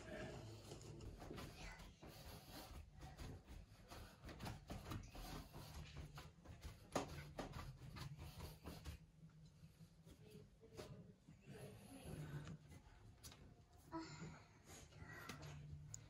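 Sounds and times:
hands kneading bread dough: 0.1 - 11.0.

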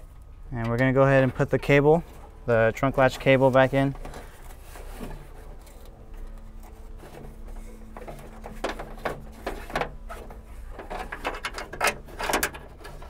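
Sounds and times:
faint steady hum: 0.0 - 13.0
trunk latch cable clicks and rattles: 5.1 - 13.0.

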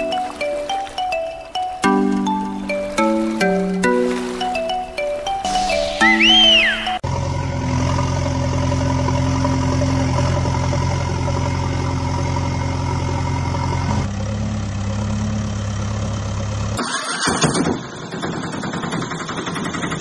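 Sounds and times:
diesel engine idling: 6.4 - 17.1.

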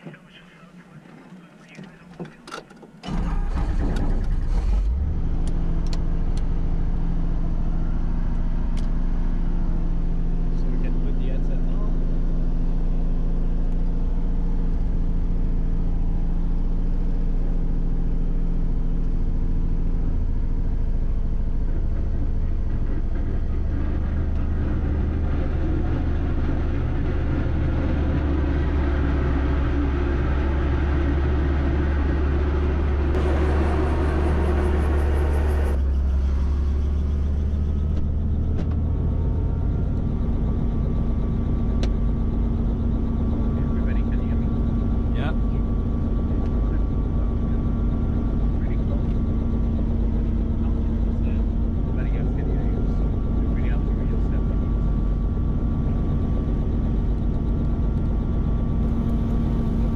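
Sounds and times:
helicopter engine and rotor drone: 20.2 - 59.9.

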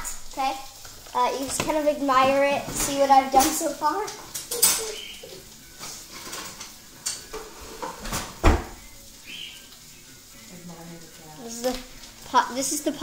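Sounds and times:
dishes and cutlery clinking: 1.4 - 8.9.

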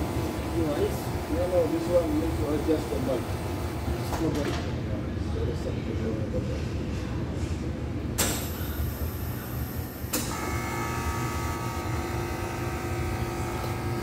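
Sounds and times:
ice cream machine motor hum: 0.0 - 5.0, 8.4 - 14.0.

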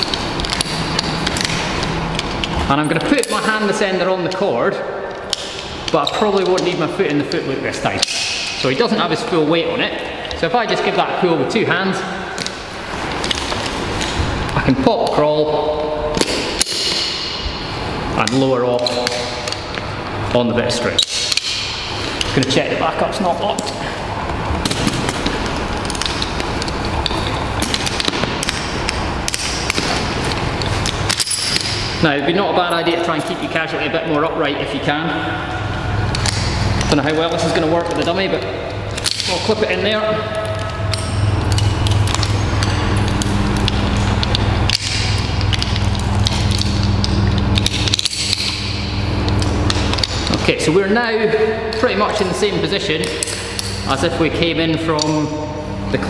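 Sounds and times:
steady low hum: 0.0 - 56.0
carabiners clicking: 24.6 - 32.0, 36.0 - 50.5
metallic clicks of carabiners: 24.6 - 32.0.

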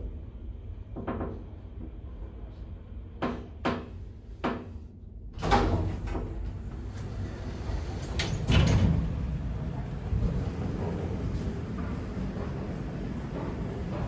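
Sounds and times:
elevator door click: 5.4 - 14.0
elevator doors sliding open: 5.4 - 14.0.

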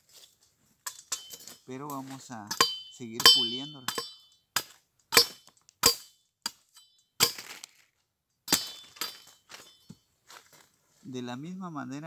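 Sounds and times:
machete chopping wood: 2.5 - 6.6, 7.2 - 7.6.

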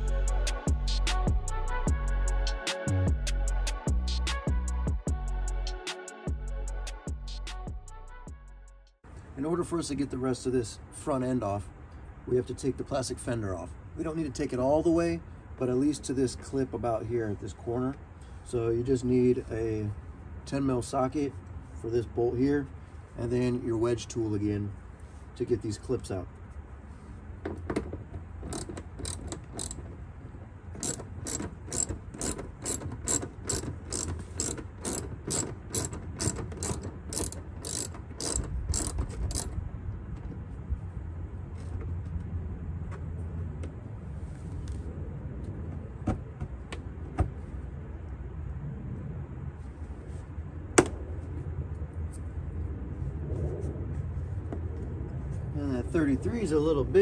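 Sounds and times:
hand ratchet clicking: 28.4 - 29.9, 30.8 - 39.6.

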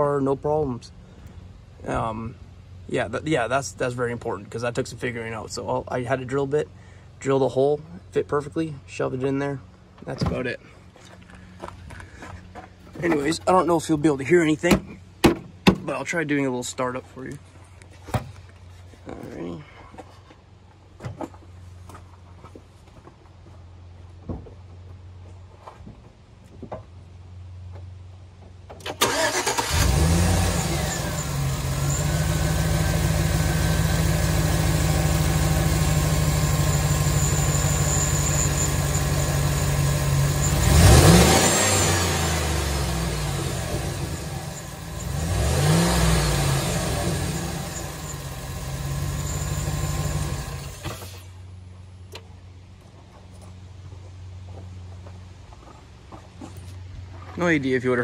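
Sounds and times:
truck engine starting: 28.8 - 51.4
engine revving: 29.0 - 51.2
engine idling: 29.0 - 51.4.

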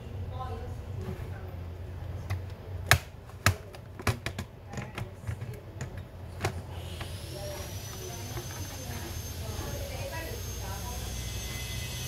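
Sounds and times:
plastic clips snapping: 2.3 - 6.6.

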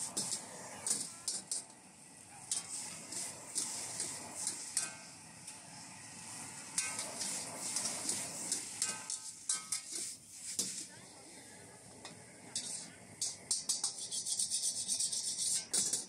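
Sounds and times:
metal spatula scraping a wok: 0.0 - 1.7, 2.5 - 5.2, 6.3 - 10.9, 12.5 - 16.0
food sizzling in a wok: 0.0 - 16.0.

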